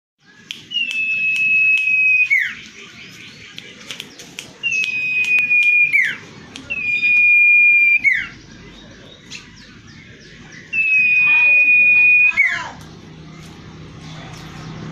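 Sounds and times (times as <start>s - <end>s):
bird whistling: 0.2s - 12.8s
bird short sharp clicks: 3.5s - 5.8s.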